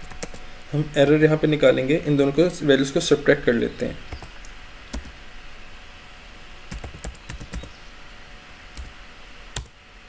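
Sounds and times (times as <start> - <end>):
computer keyboard typing: 0.0 - 0.4, 4.9 - 5.2, 6.7 - 7.7.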